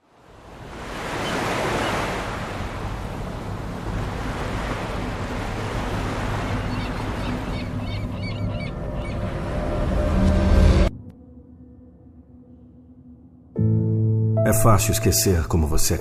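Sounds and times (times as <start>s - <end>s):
ocean surf rushing: 0.0s - 10.9s.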